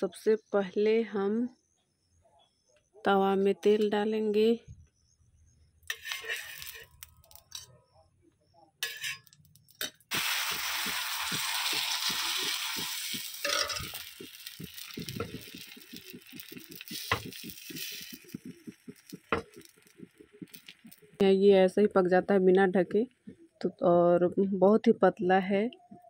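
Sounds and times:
crackling and popping: 5.8s - 7.7s, 8.8s - 23.8s
batter sizzling on hot pan: 5.9s - 7.6s, 8.8s - 21.2s
spoon clinking on metal pan: 8.8s - 9.2s, 13.4s - 14.1s.

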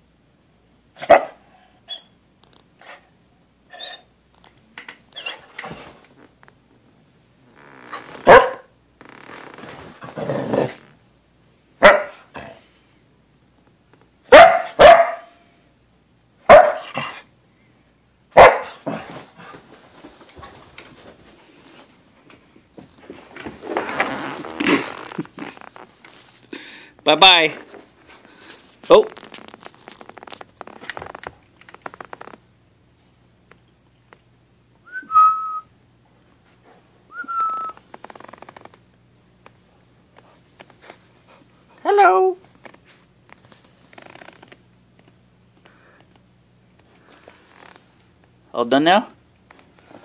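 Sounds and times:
dog barking: 1.0s - 1.4s, 8.2s - 8.7s, 11.8s - 12.6s, 14.3s - 15.4s, 16.4s - 17.2s, 18.3s - 19.0s
rustling: 18.9s - 26.5s, 27.5s - 32.4s.

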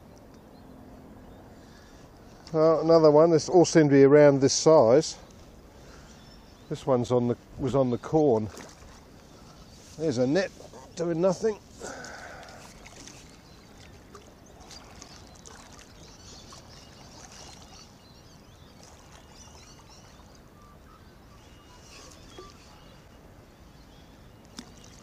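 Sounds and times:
birds chirping: 0.0s - 25.0s
water splashing from thrashing fish: 11.8s - 17.8s, 18.8s - 19.3s.

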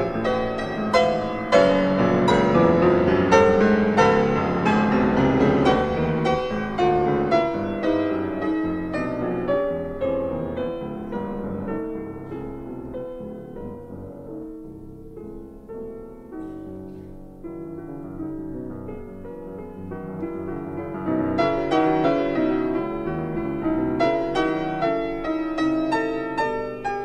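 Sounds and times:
piano music: 0.0s - 27.0s.

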